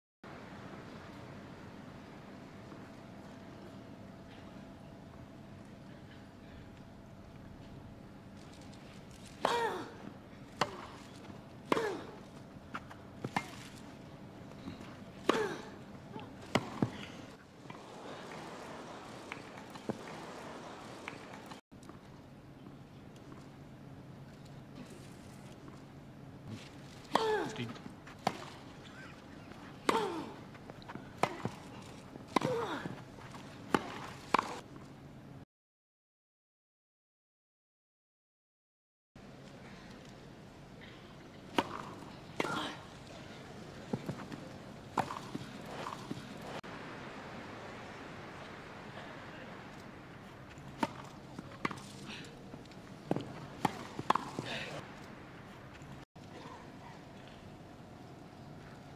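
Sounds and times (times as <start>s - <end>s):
rackets striking tennis ball: 10.4s - 13.9s, 16.3s - 21.6s, 26.5s - 28.9s, 30.8s - 34.6s, 41.5s - 43.1s, 43.8s - 46.6s, 49.8s - 55.1s
tennis ball bouncing: 10.5s - 13.9s, 16.2s - 21.6s, 27.1s - 28.9s, 29.5s - 34.6s, 41.5s - 42.6s, 43.7s - 46.6s, 50.5s - 54.8s.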